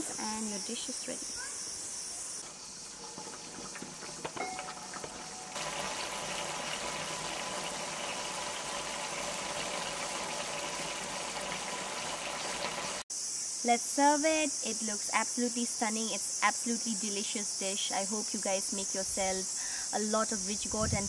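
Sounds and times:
curry boiling and bubbling: 2.4 - 13.0.

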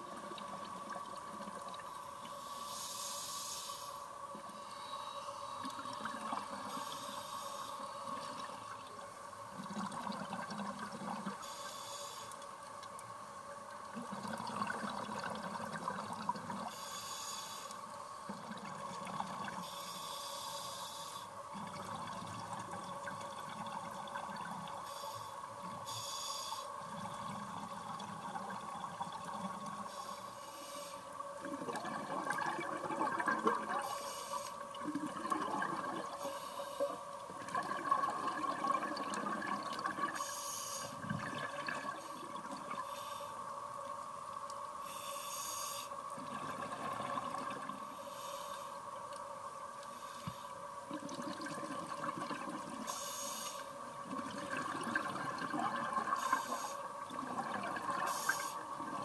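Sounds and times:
exhaled air bubbling underwater: 0.0 - 2.3, 4.2 - 11.6, 12.9 - 17.2, 17.9 - 19.8, 21.4 - 30.4, 31.0 - 45.2, 46.0 - 59.0
faint hum: 0.0 - 59.0
regulator hiss on inhale: 1.8 - 9.0, 11.0 - 13.1, 16.4 - 23.3, 24.2 - 37.2, 40.0 - 46.5, 47.7 - 50.9, 52.7 - 54.6, 55.3 - 57.0, 57.6 - 59.0.

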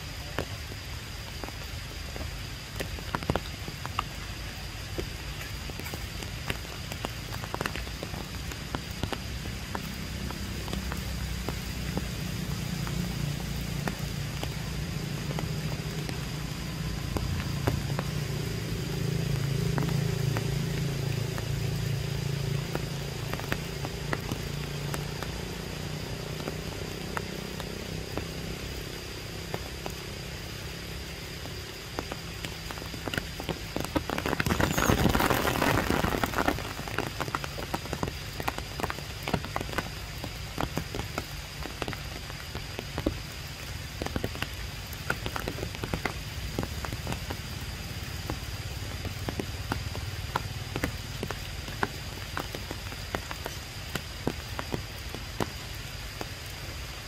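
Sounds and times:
low steady rumble: 0.0 - 40.8
rain pattering on leaves: 0.0 - 57.0.

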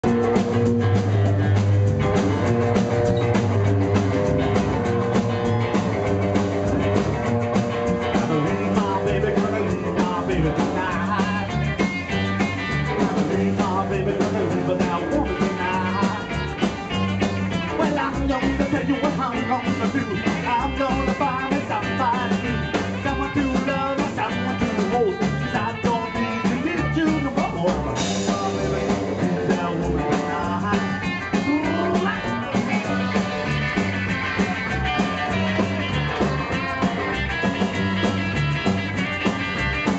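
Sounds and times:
rockabilly band playing: 0.0 - 39.9
slapped upright bass: 0.0 - 39.9
male lead vocal: 8.1 - 33.6.

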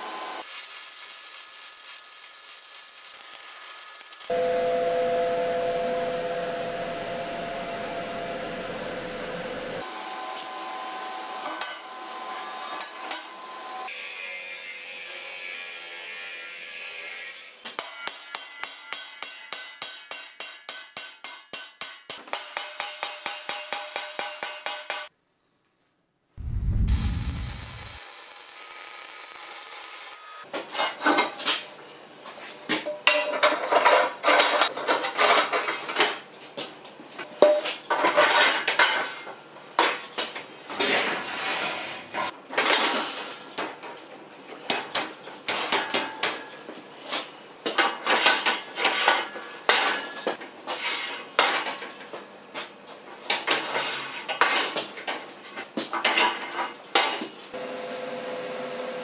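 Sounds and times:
metal tools clattering: 32.9 - 36.2.

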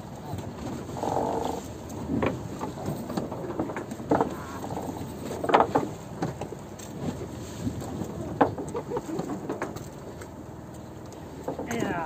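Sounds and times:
boat wash at sea: 0.0 - 12.0
knocks and splashes: 1.9 - 10.4, 11.1 - 12.0.

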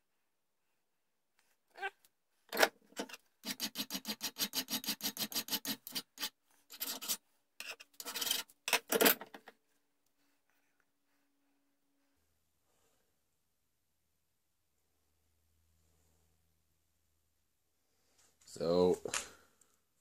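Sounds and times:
hand file rasping on metal: 3.0 - 8.5.

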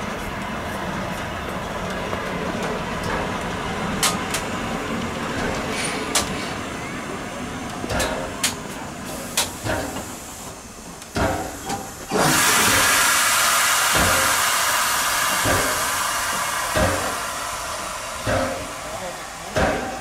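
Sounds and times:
steam locomotive releasing steam: 5.3 - 20.0.

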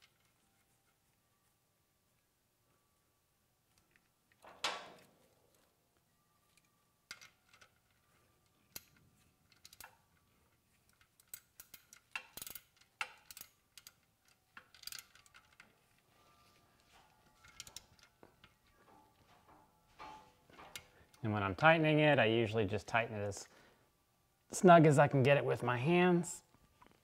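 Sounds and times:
ratchet wrench clicking: 11.2 - 15.6.

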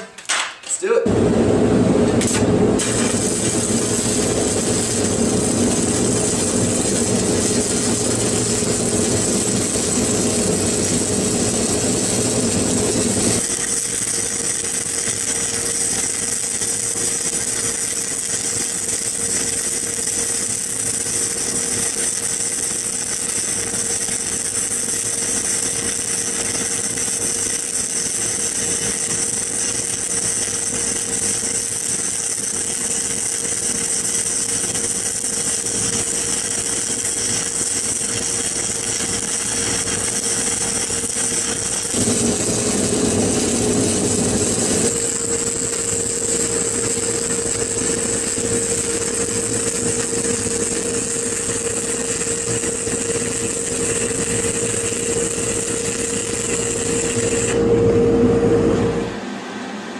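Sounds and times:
welding arc hissing: 0.8 - 57.9.

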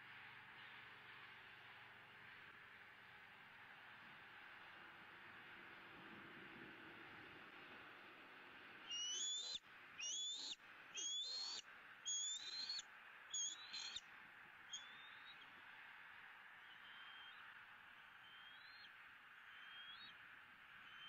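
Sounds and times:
eagle whistled calls: 8.9 - 14.0, 14.7 - 15.4, 16.6 - 17.4, 18.2 - 18.9, 19.5 - 20.2.

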